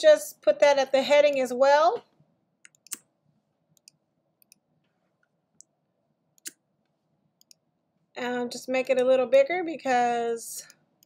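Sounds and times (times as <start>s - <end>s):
computer clicks: 2.6s - 3.1s, 7.4s - 7.6s.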